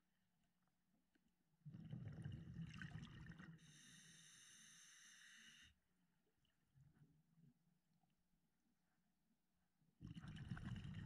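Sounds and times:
exhaled bubbles underwater: 1.7s - 3.8s, 10.0s - 11.0s.

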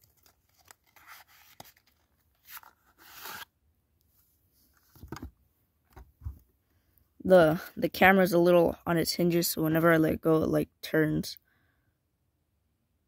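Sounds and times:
packaging rustling and scraping: 0.0s - 3.5s.

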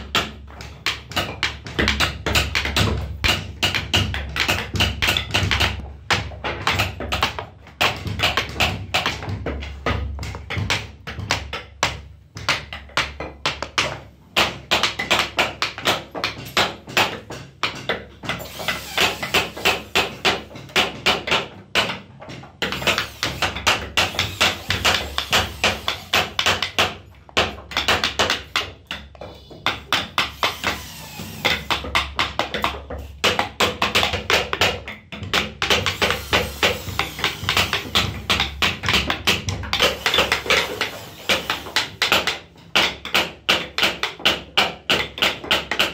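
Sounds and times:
mallet tapping chisel into wood: 0.0s - 45.9s.

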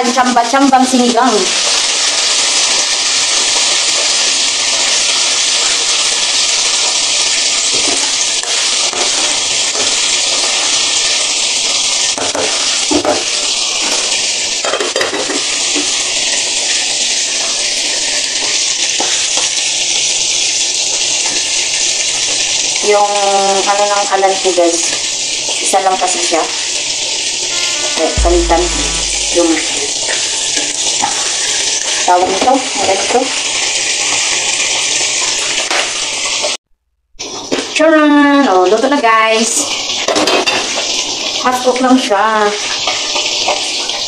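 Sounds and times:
pot boiling hard: 0.0s - 27.6s
fish frying in oil: 0.0s - 29.6s, 30.6s - 36.6s, 37.4s - 44.0s.

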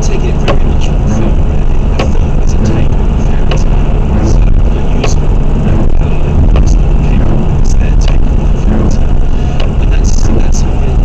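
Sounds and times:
car engine and tyre rumble: 0.0s - 11.0s
sharp click: 2.0s - 2.7s.

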